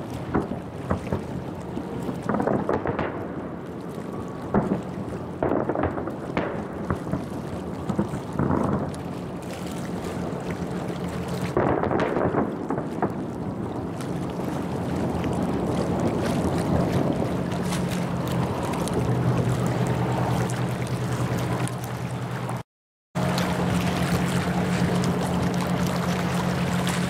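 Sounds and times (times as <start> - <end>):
low hum and rumbling: 0.0 - 22.6, 23.2 - 27.0
distant fireworks cracks and booms: 0.2 - 9.4, 11.5 - 13.8.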